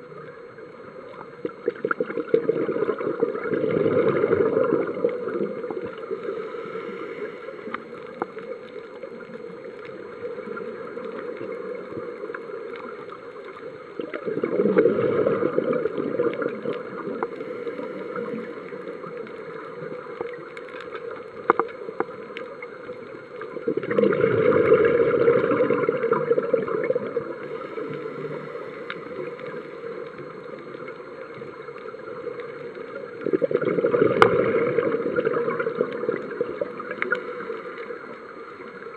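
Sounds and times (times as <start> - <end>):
faint clicks: 0.0 - 38.9
low steady hiss: 0.0 - 38.9
diver's bubbles rushing: 1.6 - 6.0, 14.2 - 17.2, 23.6 - 27.5, 33.2 - 37.2.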